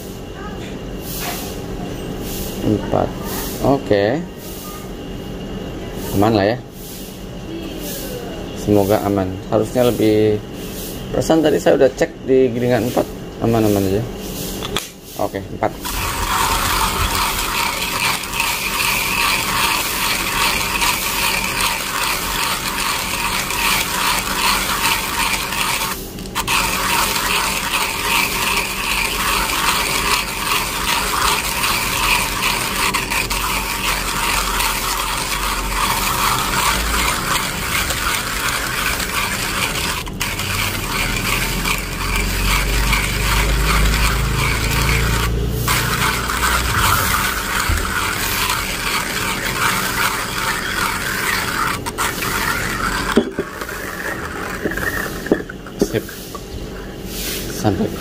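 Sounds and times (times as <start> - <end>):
hand coffee grinder crunching beans: 15.8 - 56.5.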